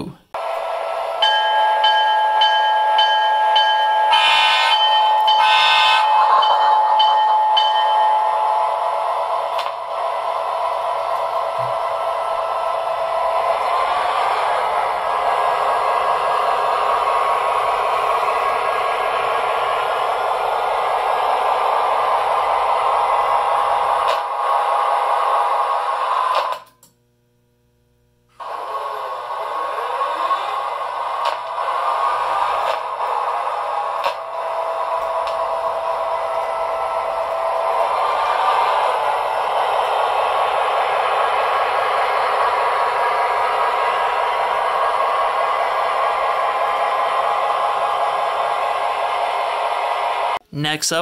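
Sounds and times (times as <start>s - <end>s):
model diesel engine drone: 0.4s - 26.6s, 28.4s - 50.4s
bell ringing: 1.2s - 8.8s
short horn blasts: 4.1s - 6.3s.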